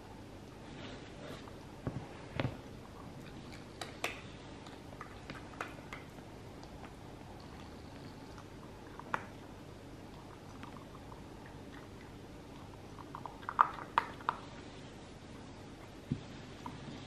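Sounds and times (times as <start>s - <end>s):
puppy crunching food: 2.8s - 14.6s.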